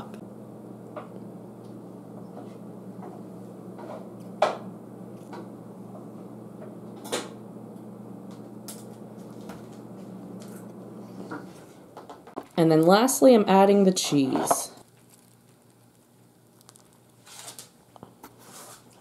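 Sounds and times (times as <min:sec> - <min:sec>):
low hum: 0:00.0 - 0:12.3.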